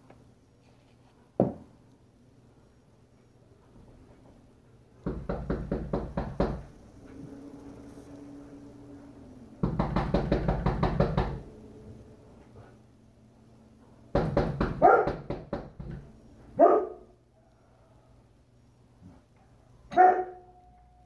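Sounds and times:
fast rattling knocks: 5.0 - 6.7, 9.6 - 11.5, 14.1 - 16.1
dog barking: 14.8 - 15.3, 16.6 - 17.8, 19.9 - 20.6.

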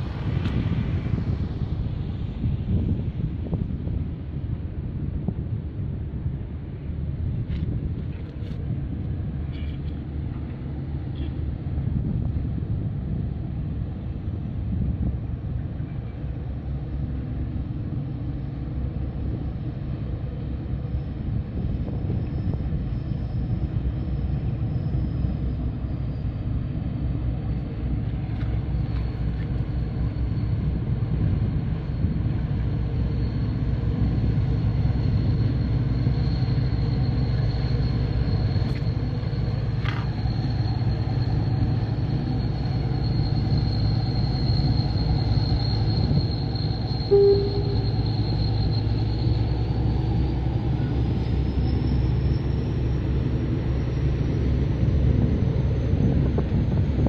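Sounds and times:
boat engines rumbling: 0.0 - 57.0
boat passing close: 0.0 - 57.0.

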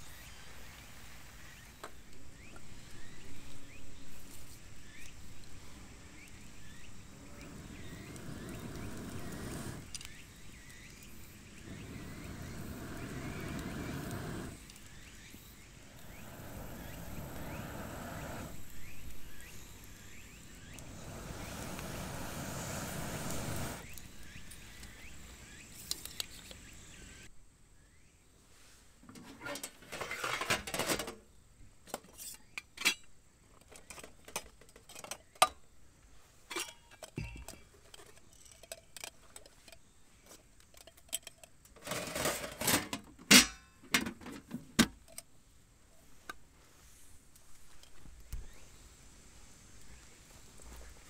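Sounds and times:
even rushing noise: 7.0 - 9.9, 11.5 - 14.7, 15.8 - 19.6, 20.2 - 23.8.

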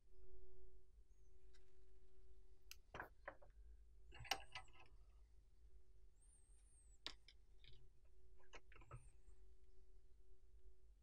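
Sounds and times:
faint clicks of small tools: 1.4 - 1.8, 2.6 - 5.0, 6.7 - 9.4.

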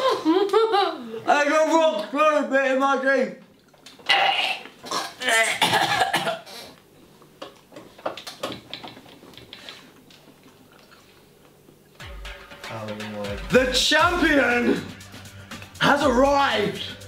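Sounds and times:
sputters and mouth sounds: 3.6 - 5.8
person coughing and gagging: 4.1 - 6.6.

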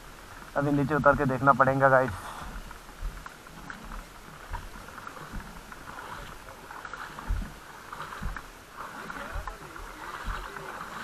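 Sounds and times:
floodwater rushing: 0.0 - 11.0
dull low thumps: 7.2 - 8.5, 10.1 - 10.5.

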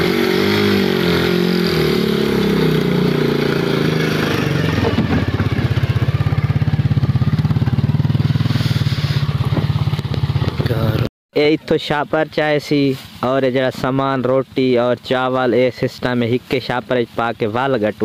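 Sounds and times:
motorcycle engine pulsing exhaust: 0.0 - 11.1.

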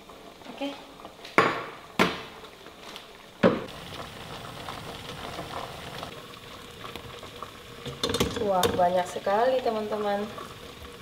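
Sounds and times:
gas burner hissing: 3.6 - 11.0
metallic clanks of steamer pot: 7.8 - 8.8.

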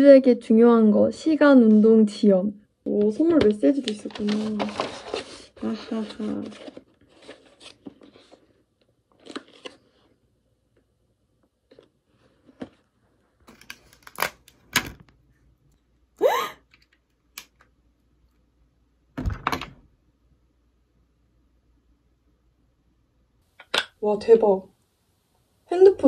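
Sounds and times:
packaging rustling: 3.4 - 8.6.

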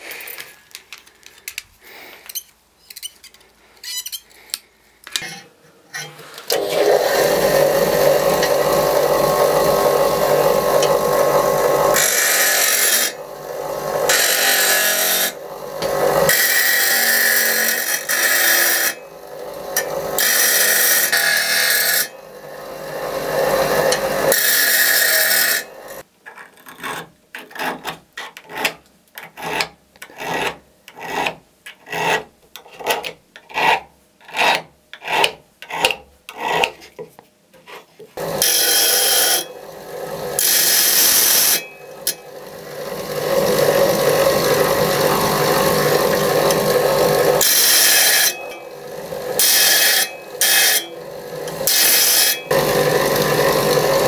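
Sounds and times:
bench grinder grinding steel: 5.2 - 26.0, 38.2 - 54.0
hand filing steel: 14.1 - 19.0, 37.7 - 39.5, 40.4 - 42.3, 42.9 - 52.6.

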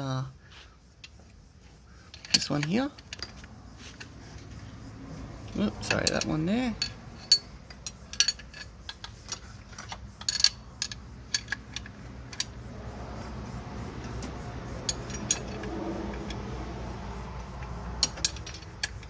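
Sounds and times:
wrench clicking on metal bolts: 2.0 - 4.6, 5.5 - 13.3, 13.9 - 16.5, 17.4 - 19.0.

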